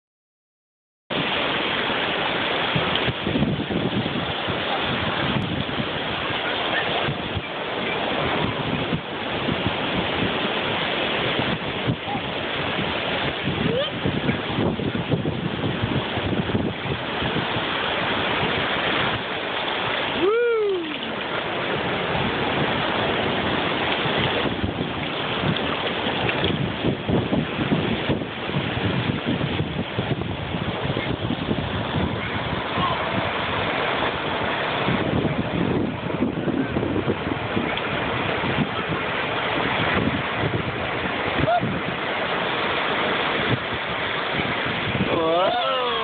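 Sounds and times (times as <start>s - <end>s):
waves washing over sand: 1.1s - 46.0s
wind buffeting microphone: 1.1s - 46.0s
short falling voice sound: 20.2s - 21.0s.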